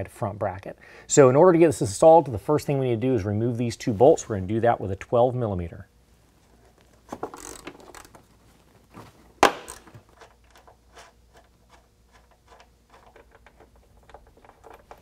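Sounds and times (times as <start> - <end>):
hand ratchet clicking: 7.2 - 8.2, 9.4 - 11.4.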